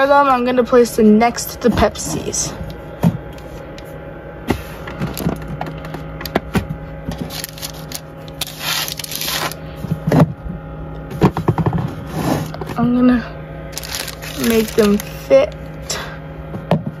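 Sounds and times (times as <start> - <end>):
plastic wrappers crinkling: 7.1 - 9.6, 13.7 - 15.8.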